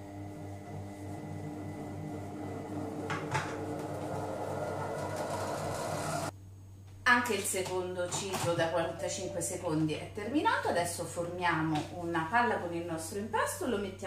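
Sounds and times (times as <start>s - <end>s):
food processor motor humming: 0.0s - 6.3s.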